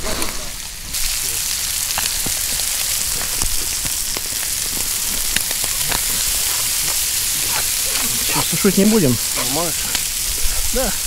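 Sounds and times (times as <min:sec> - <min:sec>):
liver sizzling in a pan: 0:00.0 - 0:11.0.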